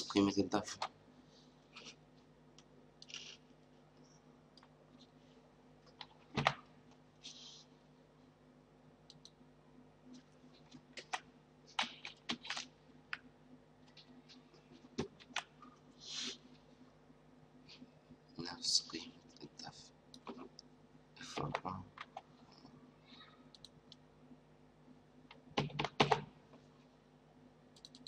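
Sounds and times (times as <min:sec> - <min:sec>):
faint steady hum: 0:00.0 - 0:28.0
keyboard keystrokes and clicks: 0:25.6 - 0:26.3, 0:27.8 - 0:28.0.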